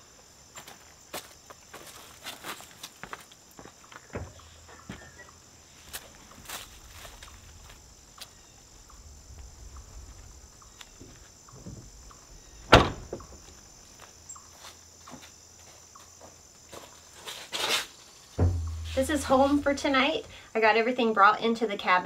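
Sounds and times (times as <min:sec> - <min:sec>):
footsteps: 0:00.5 - 0:20.3
van side door slamming: 0:11.6 - 0:13.4, 0:18.4 - 0:18.9.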